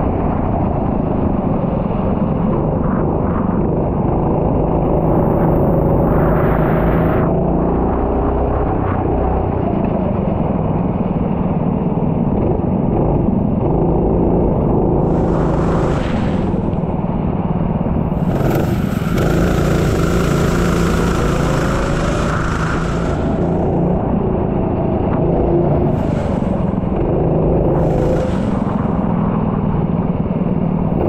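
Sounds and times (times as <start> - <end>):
racing engine running hard: 0.0 - 31.0
rushing hiss: 15.0 - 16.8, 18.2 - 23.8.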